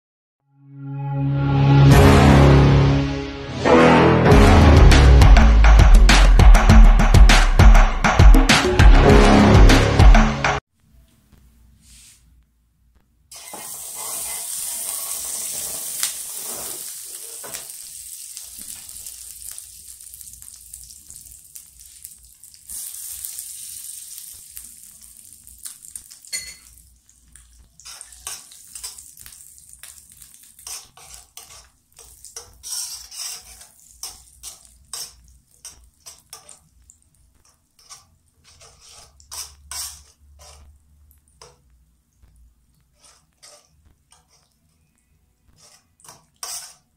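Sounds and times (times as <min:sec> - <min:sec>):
butter sizzling in a wok: 0:13.3 - 0:41.6, 0:45.6 - 0:46.9
metal spoon scraping a wok: 0:30.6 - 0:36.6, 0:37.4 - 0:40.7, 0:42.9 - 0:44.6, 0:45.6 - 0:46.9.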